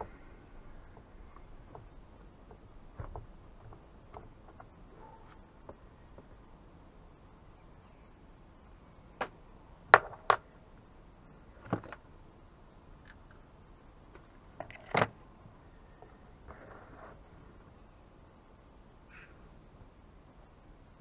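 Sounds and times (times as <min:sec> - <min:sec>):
soft rustle: 0:15.8 - 0:17.8.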